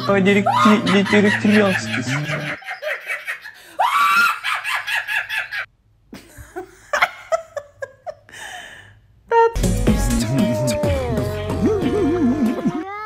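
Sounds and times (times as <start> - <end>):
woman laughing: 0.0 - 8.4.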